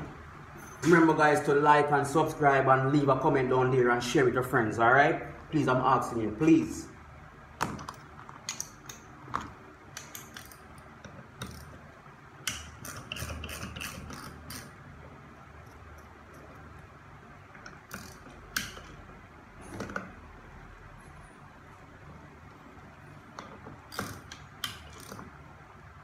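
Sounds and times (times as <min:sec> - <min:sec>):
hand ratchet clicking: 0:09.9 - 0:11.8, 0:12.4 - 0:14.8, 0:17.6 - 0:19.0, 0:23.9 - 0:25.3.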